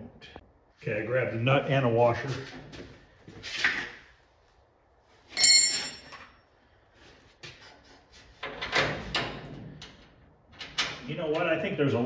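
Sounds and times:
metallic clink: 5.4 - 6.3.

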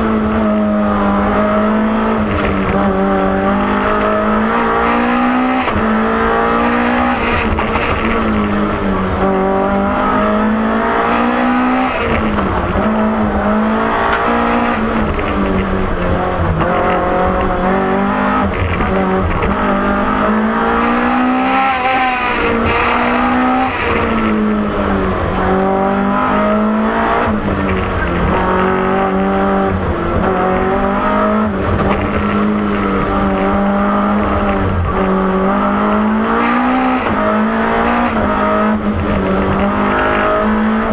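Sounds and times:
car engine revving: 0.0 - 40.9
road and drivetrain rumble: 0.0 - 40.9.

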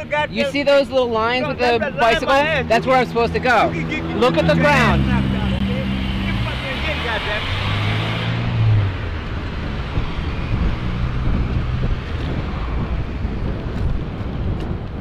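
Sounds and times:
wind on microphone: 7.1 - 15.0.

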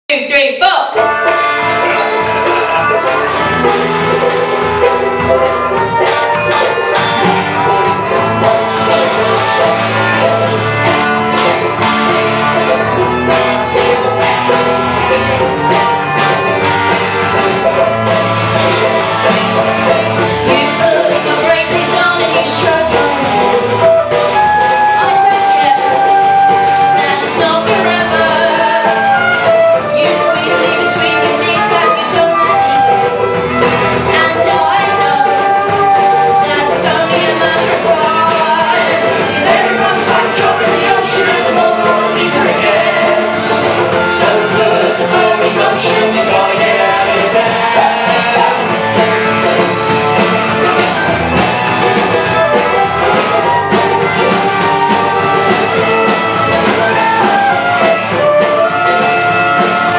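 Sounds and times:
acoustic guitar: 0.9 - 59.9
banjo: 1.0 - 59.9
women singing: 20.2 - 33.2, 34.1 - 49.3
flute: 22.6 - 45.7, 47.4 - 59.9.

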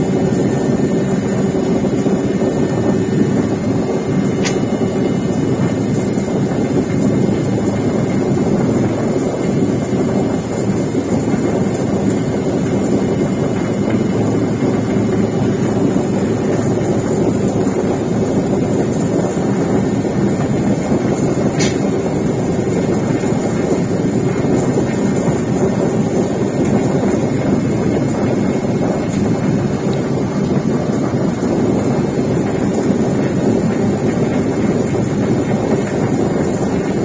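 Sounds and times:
rushing air: 0.0 - 37.0
small aircraft engine drone: 0.0 - 37.0.

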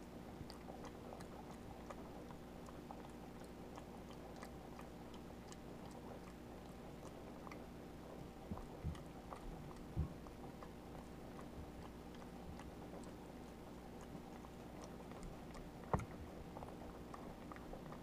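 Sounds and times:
low steady hum: 0.0 - 18.0
monkey chewing clicks and smacks: 0.0 - 18.0
soft thumps: 15.9 - 16.3.

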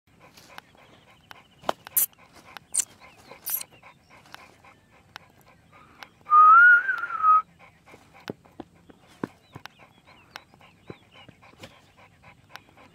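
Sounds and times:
dog panting: 0.1 - 12.9
wavering whistle-like tone: 6.3 - 7.4.

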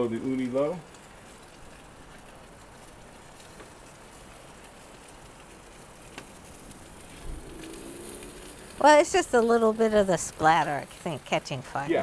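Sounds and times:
burner flame hissing: 0.0 - 12.0
steak sizzling in a pan: 0.0 - 12.0.

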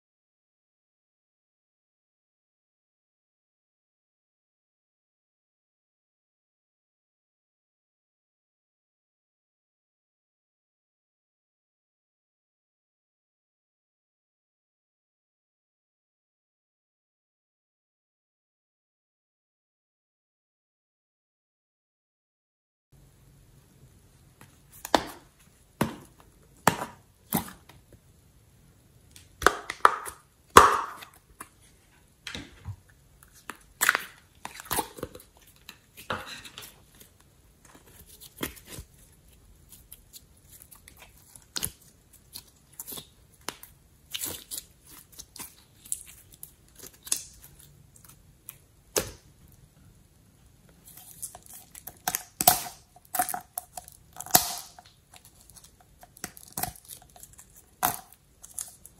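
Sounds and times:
slime squishing and popping: 39.7 - 49.3, 50.9 - 58.9.

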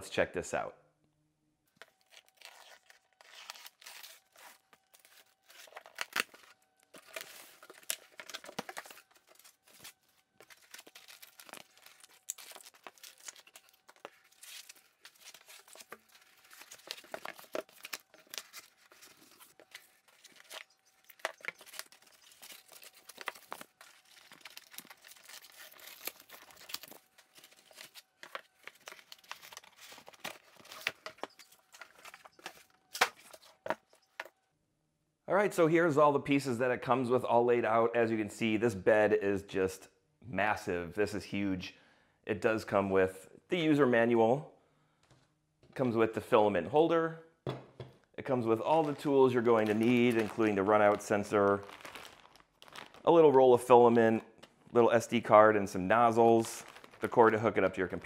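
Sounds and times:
cardboard and foam rustling: 1.8 - 34.3, 48.4 - 58.0.

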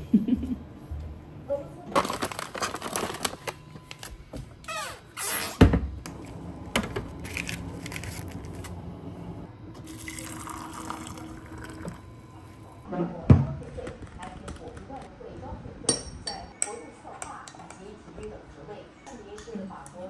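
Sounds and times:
packaging crinkling and tearing: 1.9 - 4.1, 7.2 - 8.8
faint steady hum: 5.9 - 13.2.

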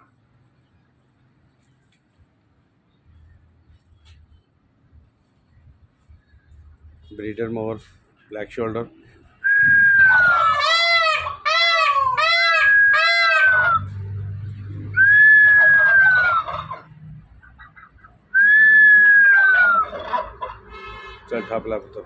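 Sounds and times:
peafowl calling: 9.7 - 14.0, 15.0 - 20.8.

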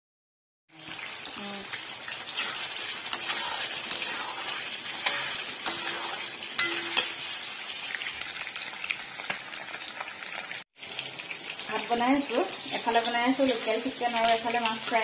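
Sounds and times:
fish frying in oil: 0.7 - 15.0
food sizzling in hot oil: 0.7 - 15.0
spatula scraping and knocking pan: 2.3 - 7.4.

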